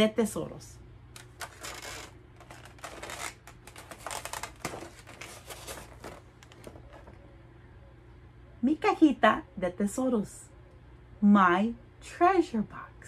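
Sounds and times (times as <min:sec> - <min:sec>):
box handling scrapes and rustles: 0:01.4 - 0:07.1.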